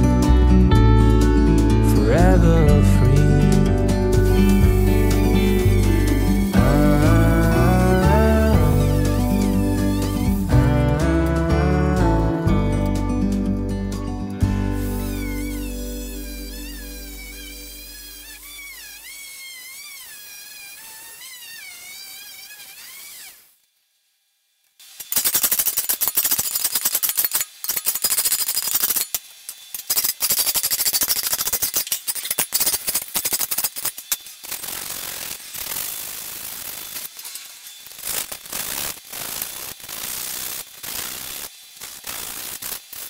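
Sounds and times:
music: 0:00.0 - 0:18.2
sandpaper scraping metal blade: 0:04.1 - 0:10.5, 0:14.7 - 0:23.5, 0:24.8 - 0:43.0.

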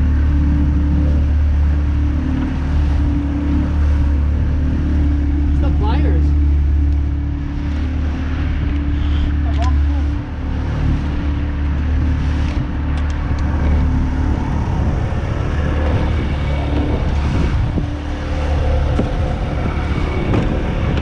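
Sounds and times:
boat motor humming: 0:00.0 - 0:21.0
choppy water against hull: 0:00.0 - 0:21.0
wind rushing: 0:06.4 - 0:21.0.

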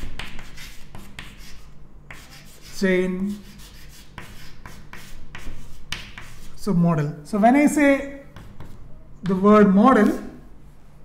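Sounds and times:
chalk scratching on chalkboard: 0:00.0 - 0:06.7, 0:08.3 - 0:10.2.

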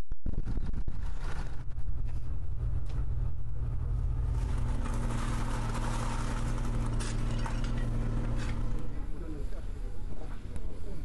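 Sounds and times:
low hum: 0:00.0 - 0:11.0
brooms and shovel scraping pavement: 0:04.1 - 0:09.5.

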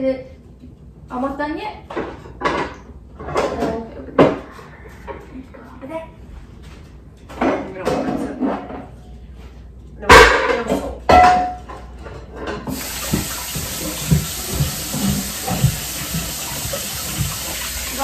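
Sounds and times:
sink tap running water: 0:12.7 - 0:18.0.

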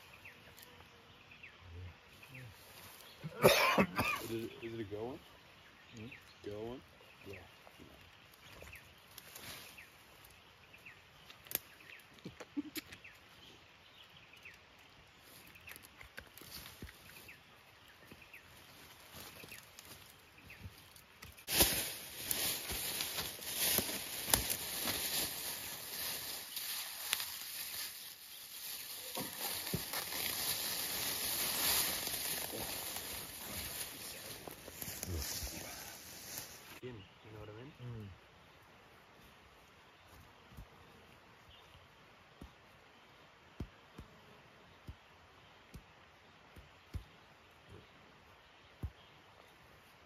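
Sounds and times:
plastic bag rustling: 0:21.5 - 0:34.4.

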